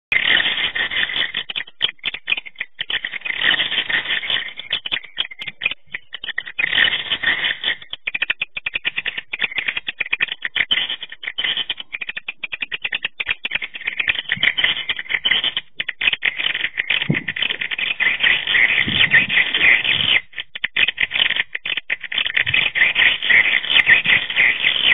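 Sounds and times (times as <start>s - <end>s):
swiftlet chatter of clicks and chirps: 0.1s - 24.9s.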